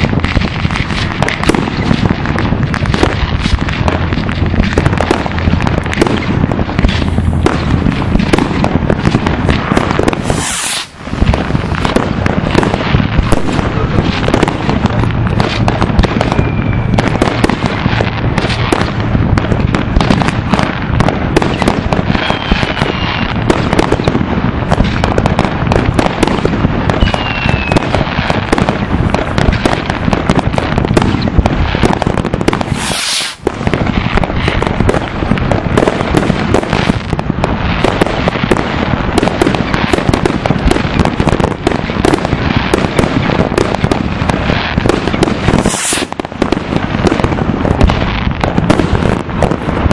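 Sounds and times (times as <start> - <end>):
fireworks bangs and crackling: 0.0 - 49.9
rocket whistles falling: 10.1 - 11.0, 15.5 - 17.4, 22.2 - 23.4, 26.9 - 27.9, 32.7 - 33.4, 45.6 - 46.1.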